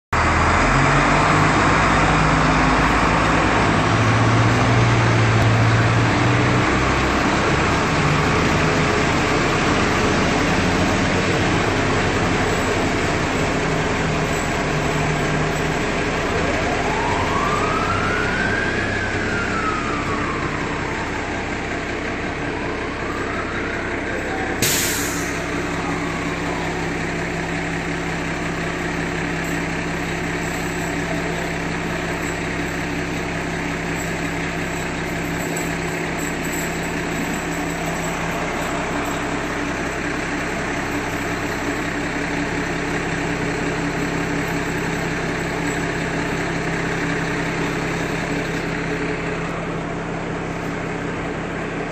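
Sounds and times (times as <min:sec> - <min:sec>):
fire engine diesel engine: 0:00.1 - 0:51.9
distant siren winding: 0:14.2 - 0:22.0.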